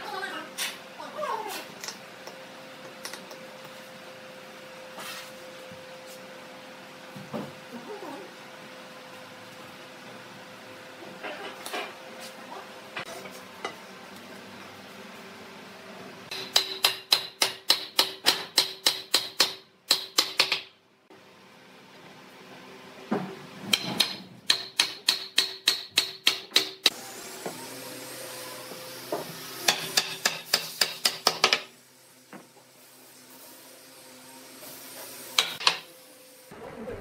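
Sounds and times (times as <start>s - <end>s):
wooden mallet hammering wood: 16.3s - 20.7s, 23.7s - 26.9s.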